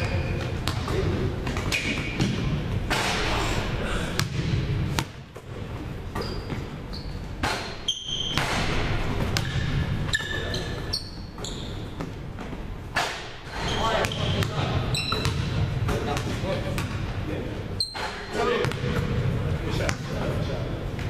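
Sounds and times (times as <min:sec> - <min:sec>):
basketballs bouncing on hardwood: 0:00.5 - 0:02.6, 0:04.2 - 0:05.5, 0:07.4 - 0:10.1, 0:14.0 - 0:17.0, 0:18.6 - 0:19.2
short high squeaks: 0:06.2 - 0:08.5, 0:10.1 - 0:12.0, 0:13.5 - 0:15.3, 0:17.8 - 0:18.3.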